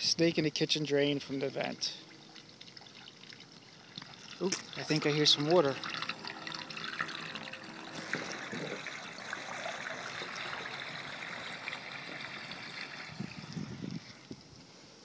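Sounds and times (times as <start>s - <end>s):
water trickling in drain pipe: 1.1s - 14.6s.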